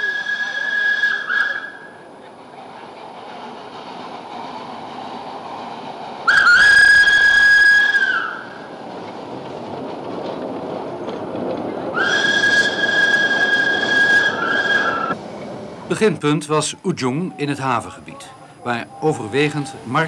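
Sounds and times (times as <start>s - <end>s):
steam whistle blasts: 0.0s - 2.0s, 6.2s - 8.6s, 12.0s - 15.2s
tram running on street track: 0.0s - 20.0s.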